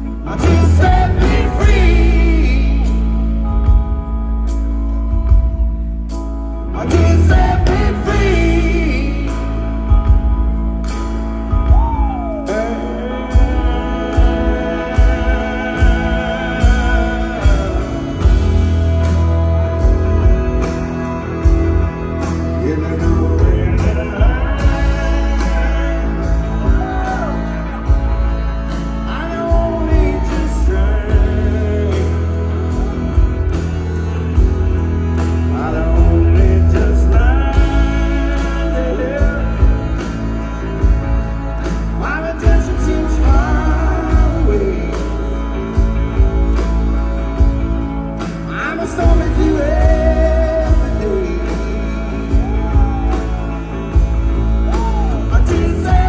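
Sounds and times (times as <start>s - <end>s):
man singing: 0.0s - 4.2s, 6.5s - 10.6s, 11.4s - 56.0s
live rock and soul band: 0.0s - 56.0s
horn section: 11.5s - 56.0s.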